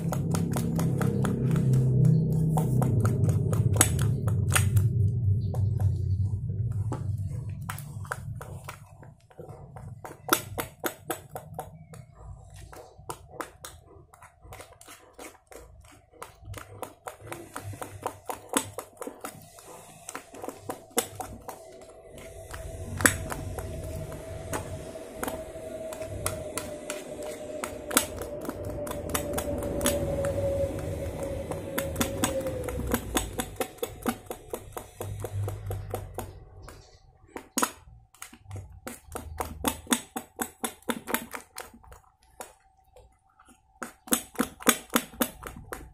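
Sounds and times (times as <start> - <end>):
faint droning tone: 0.0 - 10.0, 19.4 - 37.3
low background rumble: 0.0 - 43.8.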